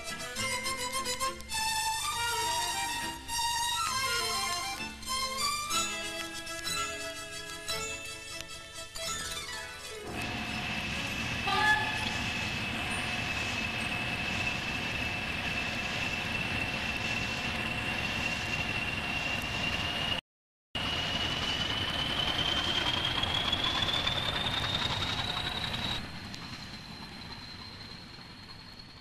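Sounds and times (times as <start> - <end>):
train rumbling on rails: 0.0 - 8.2, 9.8 - 20.2, 20.8 - 29.0
high whine: 10.0 - 20.2.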